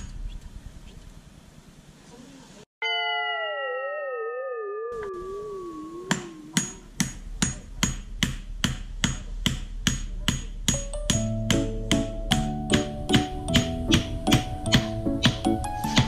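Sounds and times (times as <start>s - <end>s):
wavering electronic tone sliding down: 2.8s - 6.7s
music cue: 2.8s - 6.9s, 11.0s - 16.0s
even metallic tapping beat: 5.9s - 16.0s.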